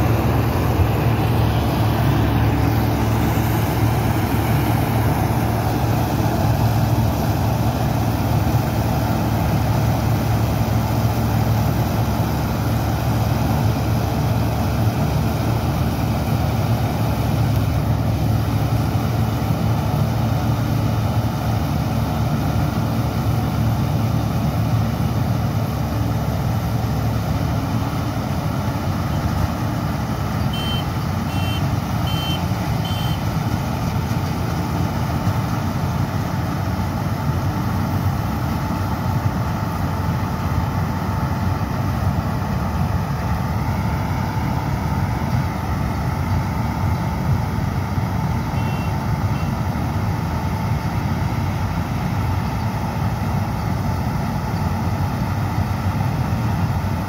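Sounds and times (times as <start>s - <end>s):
combine harvester engine drone: 0.0s - 57.0s
short high beeps: 30.6s - 33.2s.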